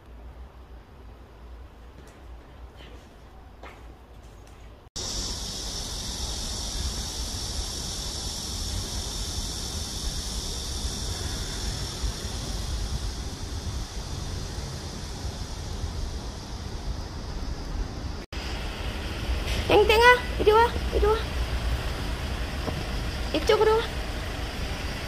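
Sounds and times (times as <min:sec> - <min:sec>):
high-pitched hiss: 0:05.0 - 0:25.0
wind rumble on microphone: 0:05.6 - 0:18.2.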